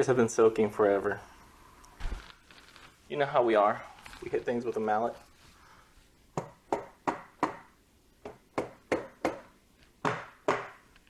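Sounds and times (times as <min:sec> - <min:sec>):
rubber mallet knocking on metal: 0:06.4 - 0:10.8.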